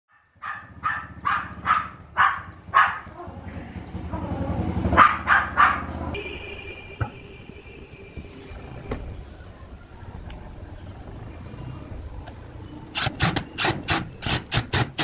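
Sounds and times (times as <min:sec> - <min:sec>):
dog barking: 0:00.1 - 0:03.4, 0:04.9 - 0:06.1.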